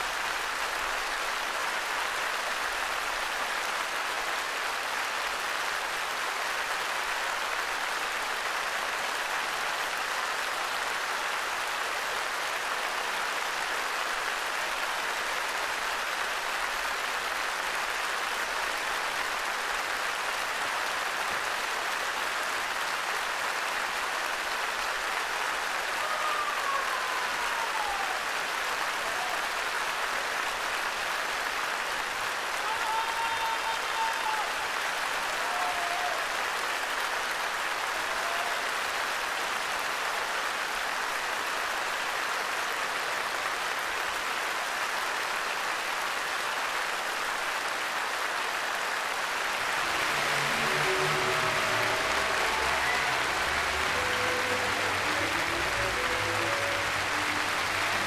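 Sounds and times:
audience applause: 0.0 - 58.0
falling tone: 49.4 - 58.0.

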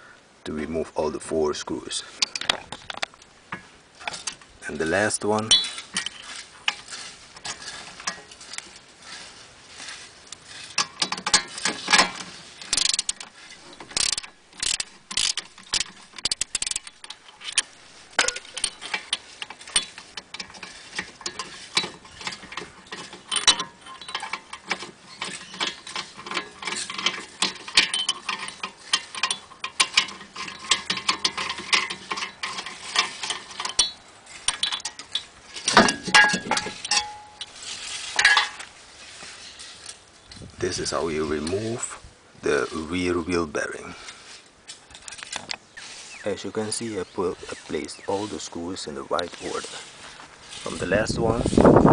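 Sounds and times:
metal bit clicking and rattling: 2.2 - 38.7
metallic clatter: 2.2 - 42.0.

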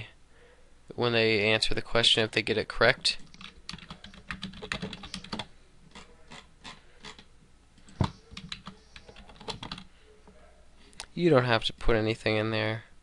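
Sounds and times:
typing on computer keyboard: 3.2 - 7.3, 7.9 - 9.9.

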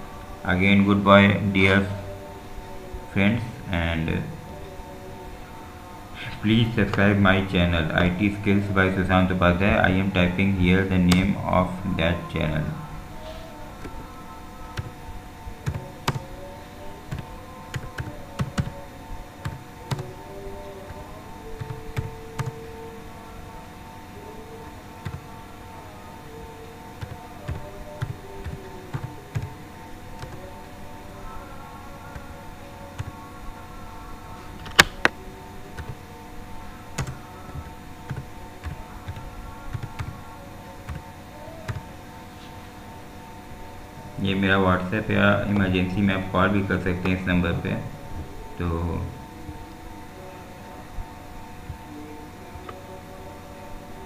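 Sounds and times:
faint steady hum: 0.0 - 54.0.

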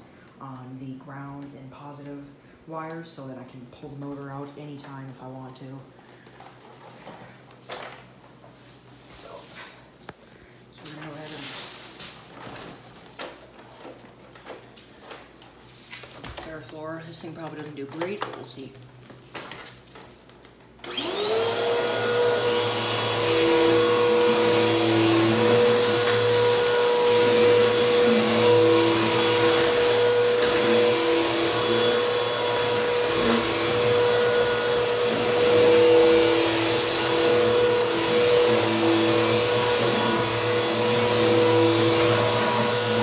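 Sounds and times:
vacuum cleaner motor whining: 20.8 - 43.0.

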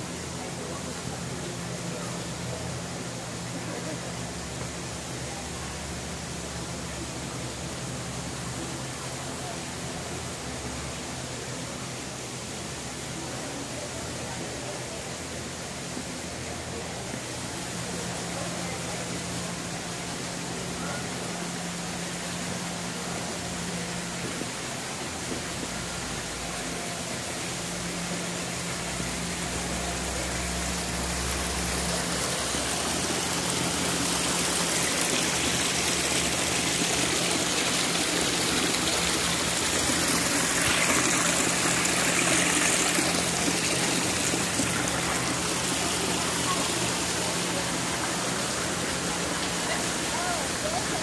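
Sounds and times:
stream trickling over rocks: 22.7 - 51.0.

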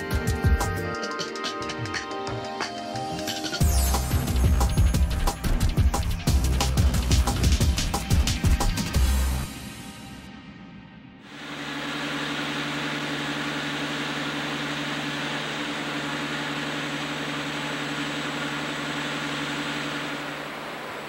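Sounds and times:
low hum: 11.2 - 21.0.

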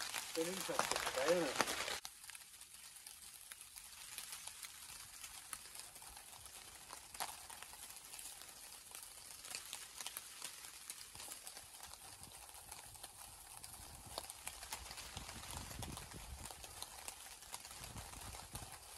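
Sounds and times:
stones knocking together: 0.0 - 2.0.

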